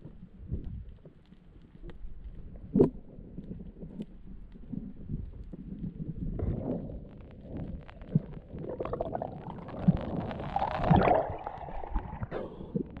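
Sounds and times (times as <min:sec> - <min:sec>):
muffled underwater gurgling: 0:04.6 - 0:13.0
water sloshing: 0:08.8 - 0:12.3.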